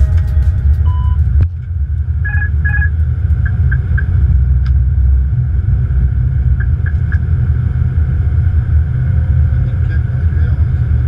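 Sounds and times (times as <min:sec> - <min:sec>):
cockpit airflow and engine rumble: 0:00.0 - 0:11.0
short electronic beeps: 0:00.8 - 0:01.2, 0:02.2 - 0:02.9.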